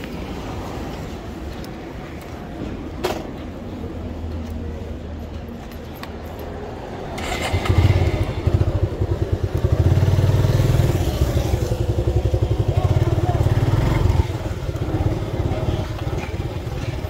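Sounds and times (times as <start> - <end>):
motorcycle engine pulling away: 7.2 - 17.0.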